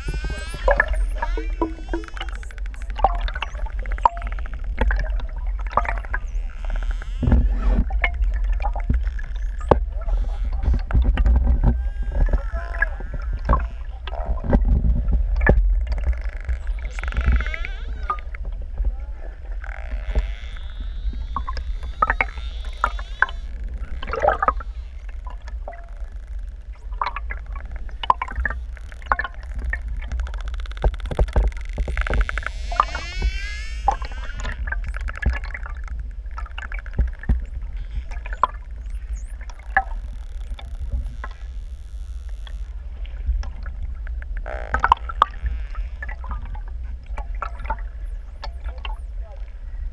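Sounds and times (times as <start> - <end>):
dolphins whistling: 0.0 - 2.6
dolphin clicks: 0.0 - 14.6, 19.6 - 35.6
low underwater rumble: 0.0 - 49.9.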